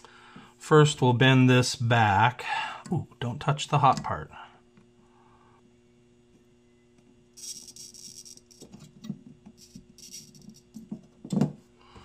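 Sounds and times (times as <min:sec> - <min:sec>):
solder sizzling: 0:07.3 - 0:08.9.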